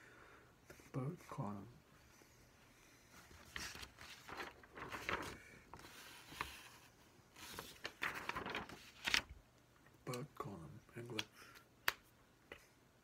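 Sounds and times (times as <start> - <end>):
paper rustling: 3.1 - 9.4.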